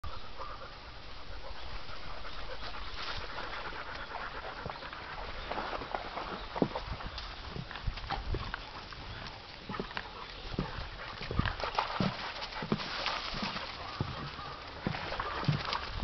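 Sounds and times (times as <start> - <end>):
dogs moving through leaves: 2.4 - 16.0
footsteps crunching on dry leaves: 12.0 - 16.0.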